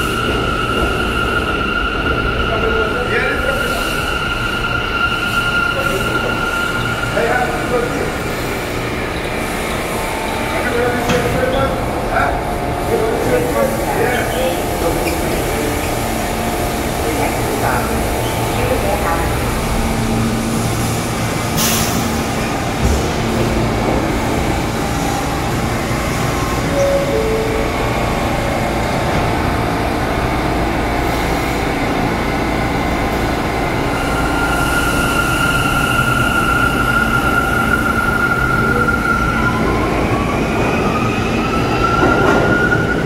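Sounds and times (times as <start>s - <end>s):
subway train rumble: 0.0s - 43.0s.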